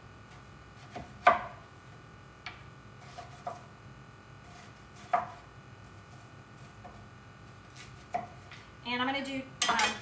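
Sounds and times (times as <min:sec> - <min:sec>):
knife slicing onion: 0:00.3 - 0:01.6, 0:03.0 - 0:03.8, 0:04.4 - 0:08.5.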